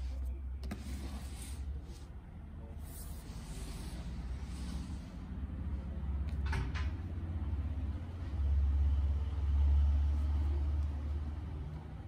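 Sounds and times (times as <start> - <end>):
hands sliding over cardboard: 0.0 - 5.2.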